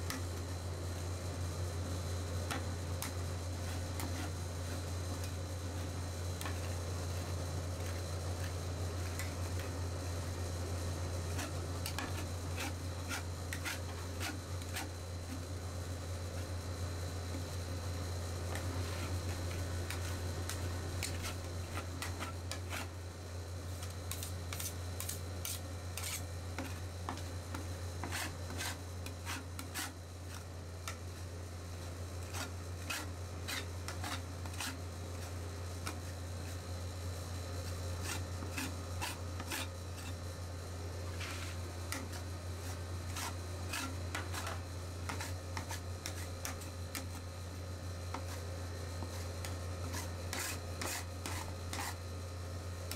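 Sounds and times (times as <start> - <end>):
spatula scraping metal plate: 24.5 - 26.8, 41.2 - 46.6.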